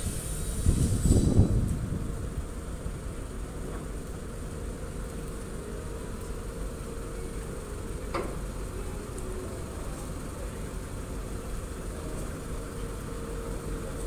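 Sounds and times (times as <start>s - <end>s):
ferry engines rumbling: 0.0s - 14.0s.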